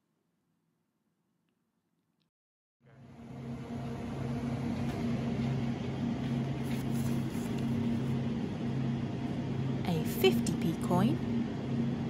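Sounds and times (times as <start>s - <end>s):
refrigeration and ventilation hum: 2.8s - 12.0s.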